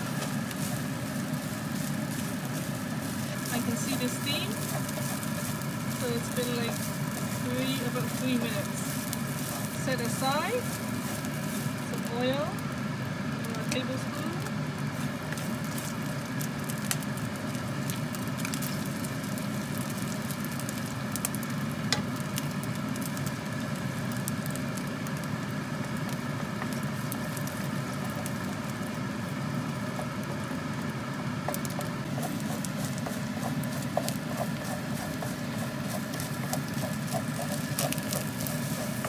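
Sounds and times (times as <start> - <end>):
eggs sizzling in a pan: 0.0 - 39.0
rice sizzling in oil: 0.0 - 39.0
wooden spatula scraping a pan: 31.8 - 39.0.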